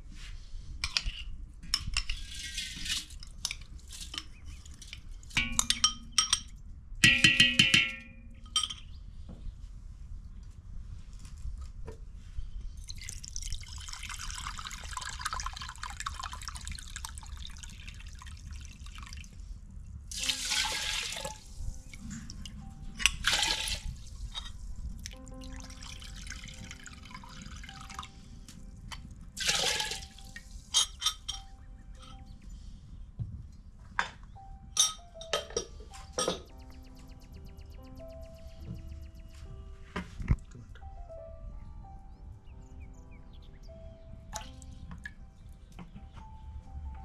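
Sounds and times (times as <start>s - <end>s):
metal pot clanking and ringing: 5.4s - 8.9s, 34.8s - 36.5s
water pouring and splashing: 12.8s - 19.4s, 20.1s - 22.4s, 23.0s - 28.1s, 29.4s - 30.9s.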